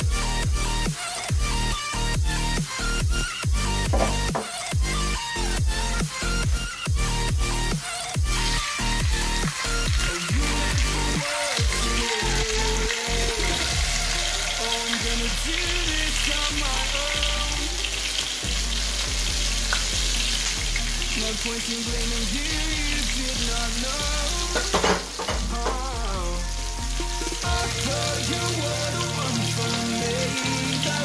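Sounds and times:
fish sizzling in hot oil: 0.0s - 31.0s.

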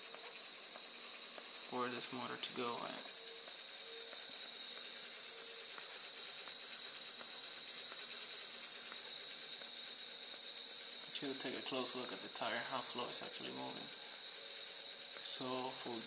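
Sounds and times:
electric motor high-pitched whine: 0.0s - 16.0s.

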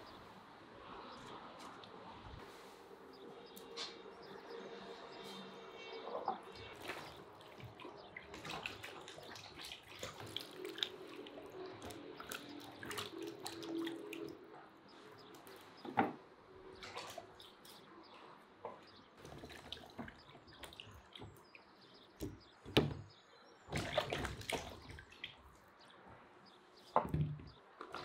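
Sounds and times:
water sloshing and splashing in bowl: 5.9s - 14.5s, 16.7s - 17.8s, 19.2s - 22.5s, 23.6s - 25.7s.

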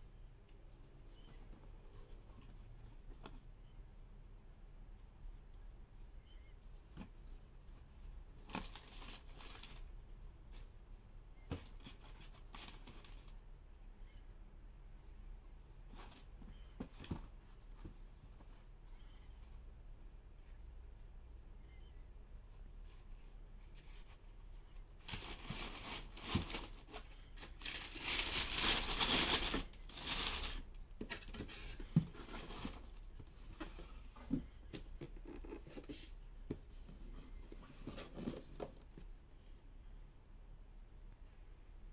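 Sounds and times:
tissue paper rustling: 8.5s - 9.8s, 25.0s - 30.7s.

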